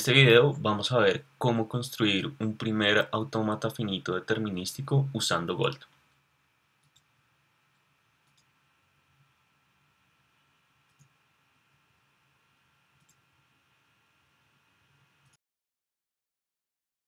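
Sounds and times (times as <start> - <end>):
faint clicks: 6.8 - 7.1, 7.7 - 8.5, 10.8 - 11.2, 13.0 - 13.2.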